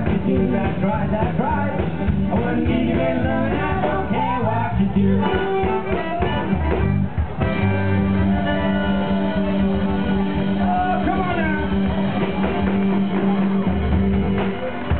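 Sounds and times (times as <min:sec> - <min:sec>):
live band playing upbeat music: 0:00.0 - 0:14.9.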